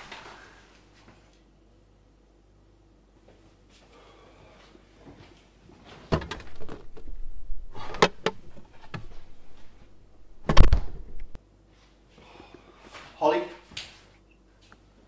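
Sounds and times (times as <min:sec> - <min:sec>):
fridge door opening: 0:06.0 - 0:11.4.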